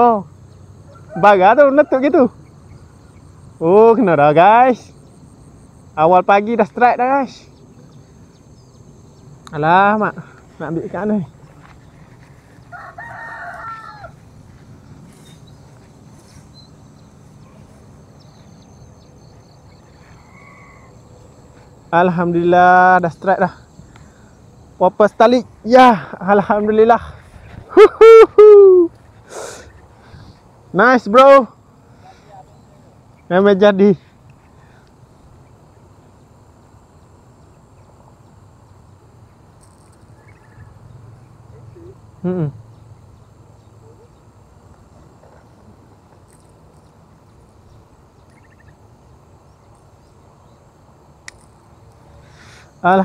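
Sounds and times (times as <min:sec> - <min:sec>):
faint high drone: 0:00.0 - 0:53.0
low background hum: 0:00.0 - 0:53.0
rooster crowing: 0:00.8 - 0:02.4, 0:12.6 - 0:14.3
faint short calls: 0:11.6 - 0:21.8
faint bird chirps: 0:14.9 - 0:22.1, 0:31.9 - 0:45.2, 0:46.3 - 0:50.7.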